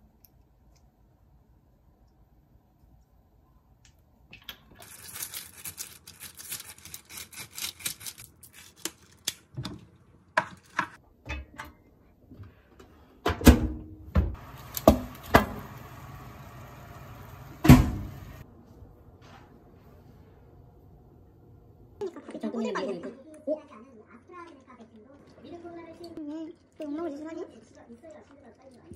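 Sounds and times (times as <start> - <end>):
oven fan whir: 14.2 - 18.5.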